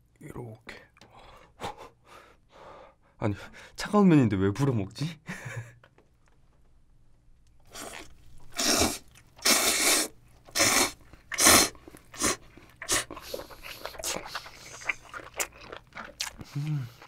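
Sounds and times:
wet chewing clicks: 7.5 - 17.0
noodles slurping: 7.6 - 17.0.

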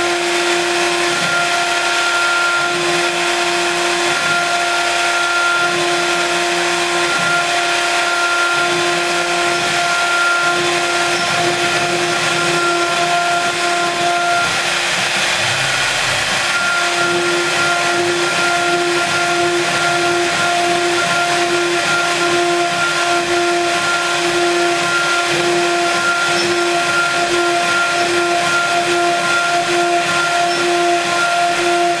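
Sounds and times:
router spindle high whine: 0.0 - 32.0.

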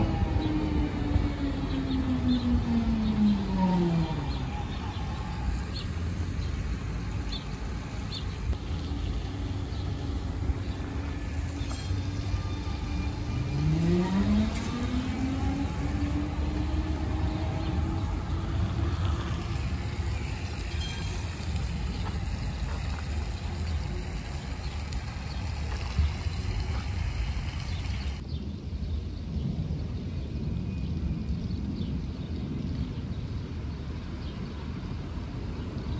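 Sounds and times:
tram motor whine: 0.0 - 5.6, 8.5 - 22.2
low rumble: 8.3 - 28.2.

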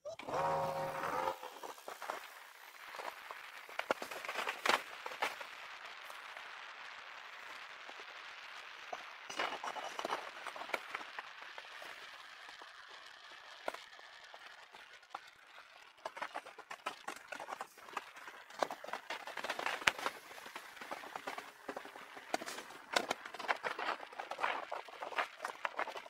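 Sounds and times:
bicycle rattling and clicking: 9.2 - 26.0.

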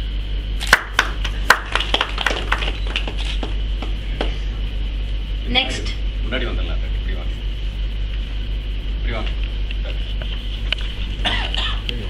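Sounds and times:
electrical hum: 0.0 - 12.0
people clapping: 0.6 - 4.4.

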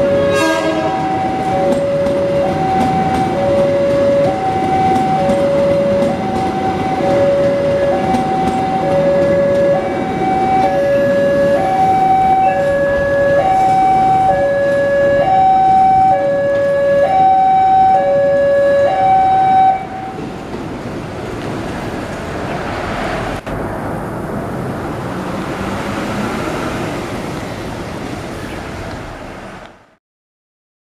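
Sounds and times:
two-tone level crossing alarm: 0.0 - 20.2
passenger train rolling past: 0.0 - 30.0.

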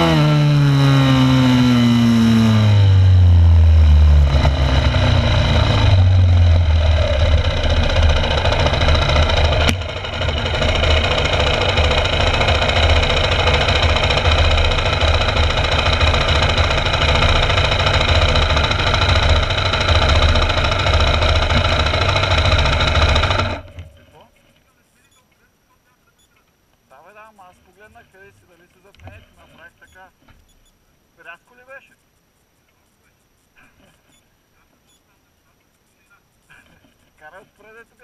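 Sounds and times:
motorcycle engine idling: 0.0 - 24.0.

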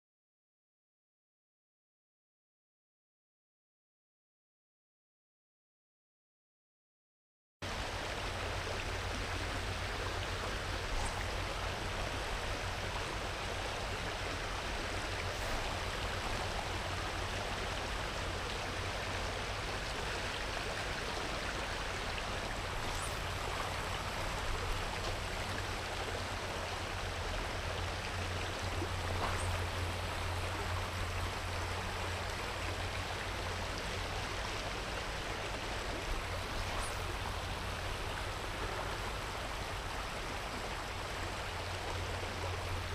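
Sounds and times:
water rushing over stones: 7.7 - 42.9.

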